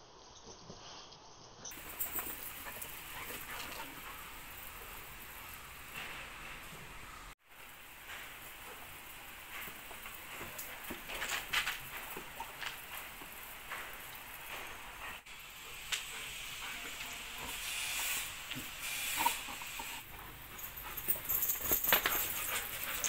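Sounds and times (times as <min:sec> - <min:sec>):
hose spray hissing: 0:07.5 - 0:23.0.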